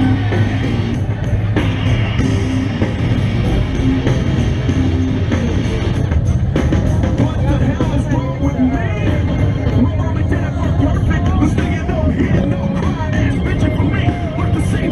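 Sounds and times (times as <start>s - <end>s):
loud rock music: 0.0s - 14.9s.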